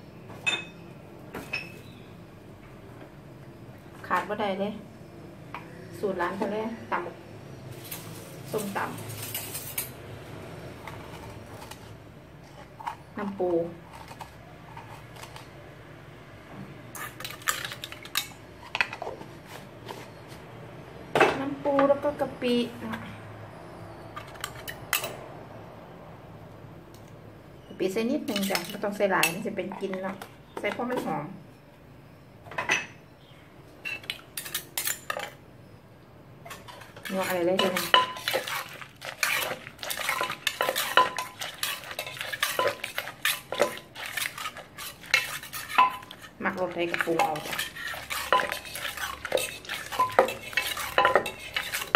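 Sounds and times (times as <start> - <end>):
metal spoons clinking: 8.6 - 10.0, 36.5 - 46.2, 46.9 - 51.9.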